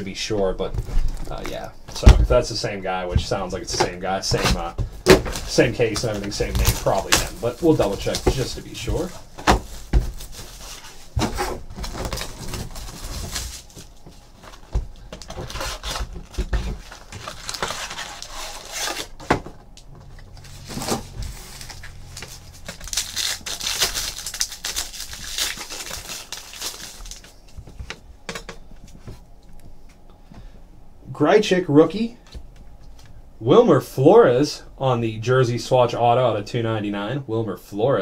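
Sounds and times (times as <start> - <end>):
cardboard and wrappers rustling: 0.4 - 28.0.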